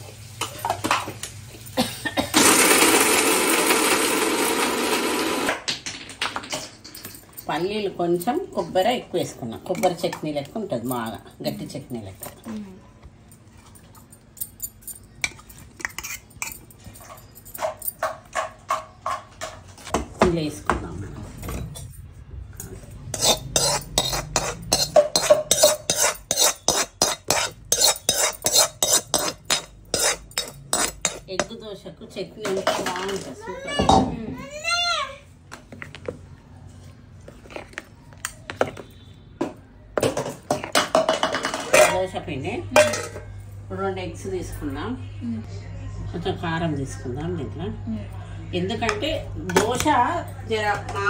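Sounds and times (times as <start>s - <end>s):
spoon stirring in plastic bowl: 15.1s - 19.9s, 22.7s - 31.6s, 37.2s - 39.1s.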